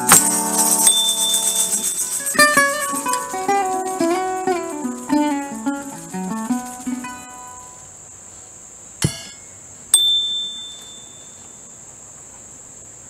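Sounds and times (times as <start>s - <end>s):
high hum of insects: 0.0s - 13.0s
metallic ding: 0.1s - 1.9s, 9.0s - 11.6s
sharp knock: 9.0s - 9.5s.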